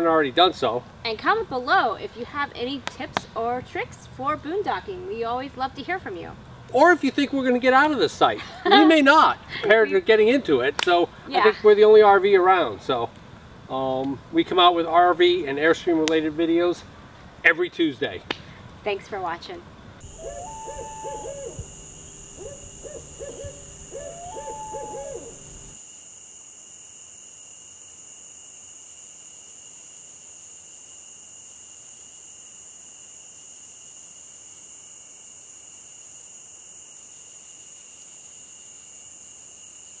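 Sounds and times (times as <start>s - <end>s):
steady high-pitched whine: 19.6s - 28.7s
owl hooting: 20.0s - 25.8s.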